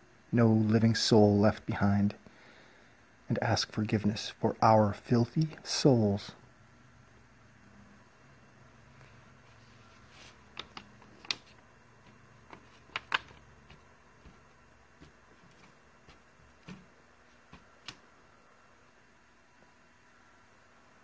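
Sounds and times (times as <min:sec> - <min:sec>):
low steady hiss: 0:00.0 - 0:21.0
handling clicks and taps: 0:10.5 - 0:16.9.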